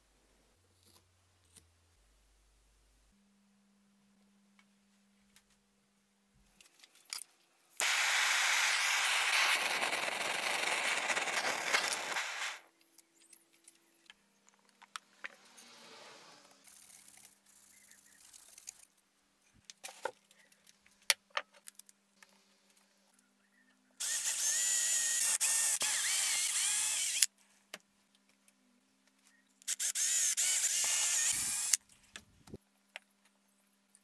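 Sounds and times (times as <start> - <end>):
blowtorch hissing: 7.8 - 12.6
faint scraping: 15.3 - 16.8.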